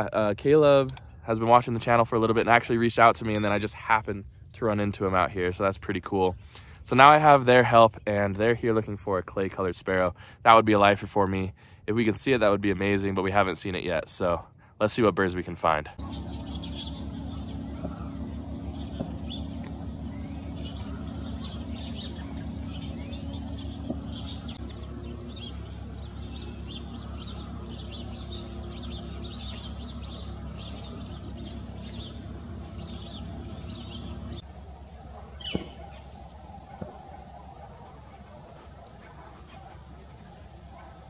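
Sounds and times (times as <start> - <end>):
songbirds chirping: 0.0 - 3.9, 16.0 - 41.0
steady low hum: 15.9 - 41.0.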